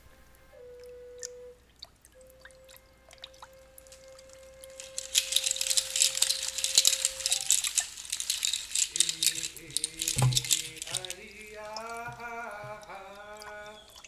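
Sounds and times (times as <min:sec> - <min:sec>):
hand rattle clattering: 0:03.8 - 0:14.0.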